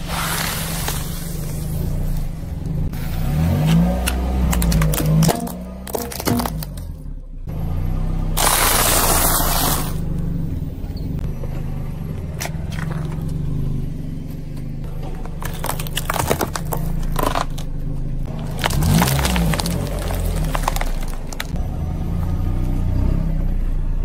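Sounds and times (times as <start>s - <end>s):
car engine idling: 0.0s - 8.4s, 9.1s - 24.0s
tyre crunching ice cream cones: 14.3s - 21.6s.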